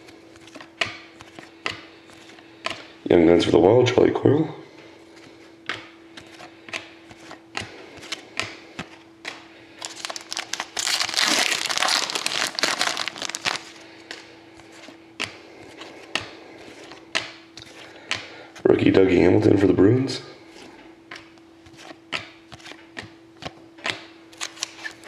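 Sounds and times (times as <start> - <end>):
foil wrapper crinkling: 9.8 - 13.8.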